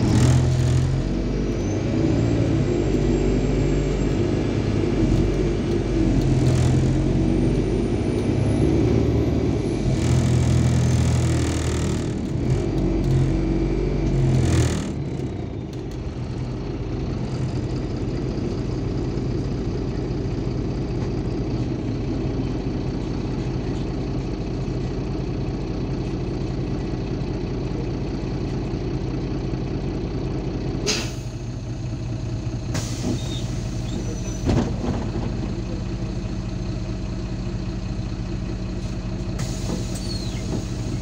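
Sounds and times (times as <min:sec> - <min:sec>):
bus diesel engine idling: 0:00.0 - 0:41.0.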